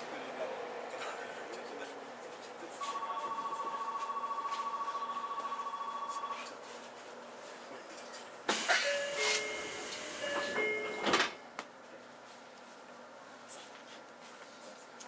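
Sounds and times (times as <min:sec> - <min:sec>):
pulsing two-tone departure bell: 0:02.9 - 0:06.4, 0:08.8 - 0:11.0
train doors closing with air hiss: 0:08.2 - 0:11.5.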